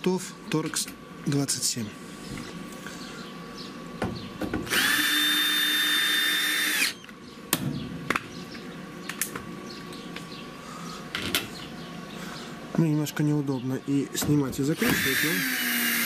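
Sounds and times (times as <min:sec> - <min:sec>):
cordless drill driving a bolt: 0:04.7 - 0:07.0, 0:14.8 - 0:16.0.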